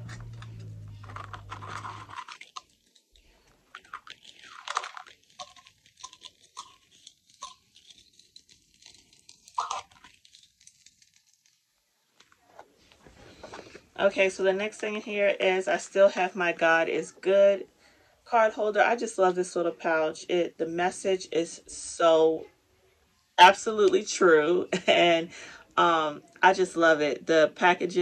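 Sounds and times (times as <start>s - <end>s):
low hum: 0.0s - 2.2s
plastic pouches rustling and crinkling: 0.0s - 14.8s.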